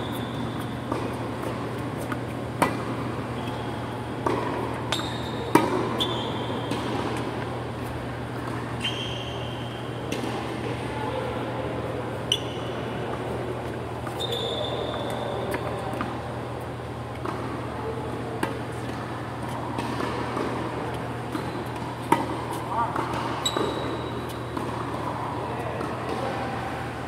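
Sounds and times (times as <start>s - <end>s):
sneakers squeaking on court: 0.0s - 10.4s, 12.2s - 13.0s, 14.0s - 16.2s, 19.5s - 26.4s
racket hitting tennis ball: 0.1s - 3.4s, 4.1s - 8.6s, 18.4s - 26.6s.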